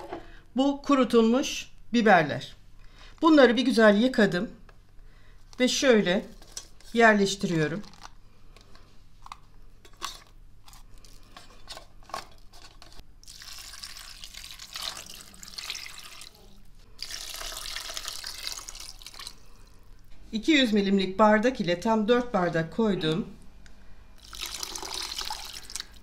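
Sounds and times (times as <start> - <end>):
water pouring into a pot: 13.2 - 19.4, 24.2 - 26.0.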